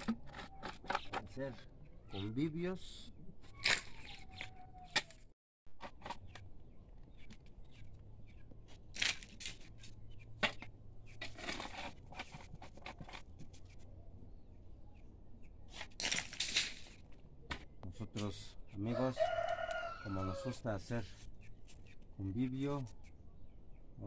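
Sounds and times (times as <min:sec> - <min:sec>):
digging tool scraping stony soil: 0:08.7 - 0:13.7, 0:15.7 - 0:17.1.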